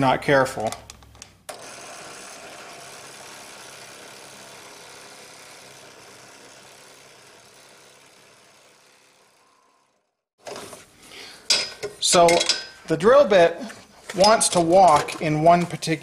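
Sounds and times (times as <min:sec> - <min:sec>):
drill press routing tube: 0:01.5 - 0:10.6.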